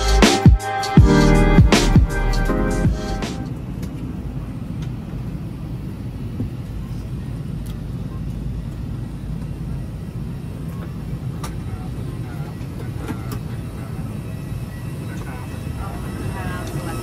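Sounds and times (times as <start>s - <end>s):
aircraft cabin low rumble: 1.0s - 17.0s
faint voices: 6.1s - 17.0s.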